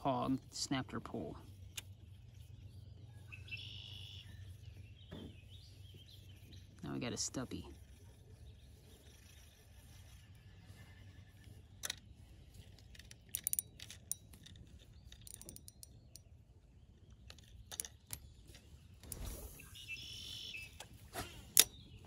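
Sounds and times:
fishing reel clicks: 11.6 - 16.3.

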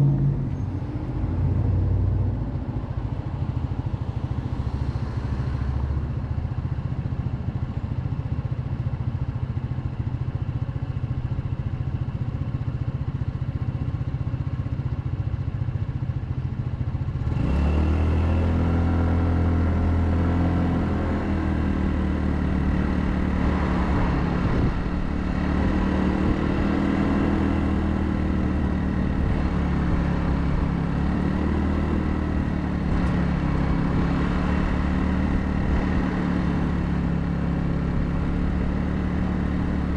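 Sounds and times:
scooter engine running: 20.2 - 39.9.

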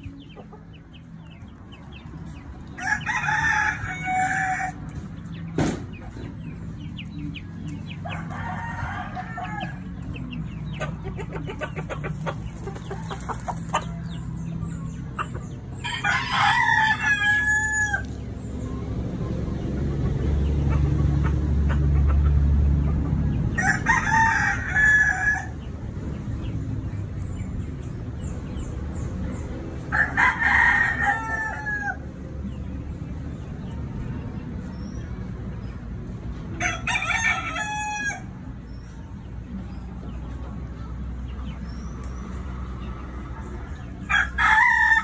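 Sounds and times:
rooster crowing: 15.8 - 18.1, 29.9 - 32.0, 44.1 - 45.0.

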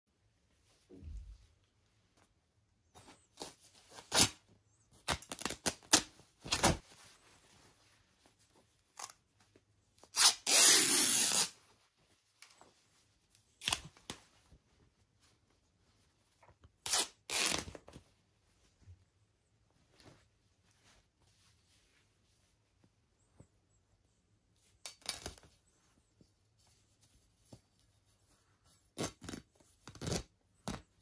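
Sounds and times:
fabric tearing: 10.1 - 11.6, 16.8 - 17.8, 29.0 - 30.9.

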